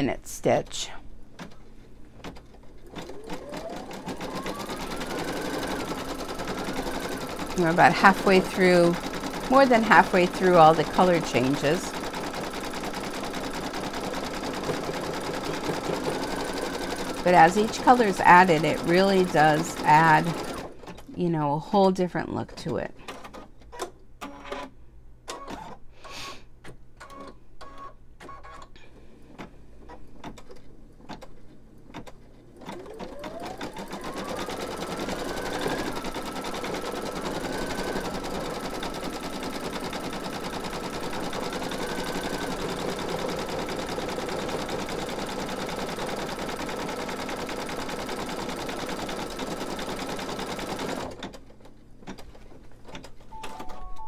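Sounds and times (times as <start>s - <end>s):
embroidery machine stitching: 2.2s - 21.1s, 29.9s - 51.5s.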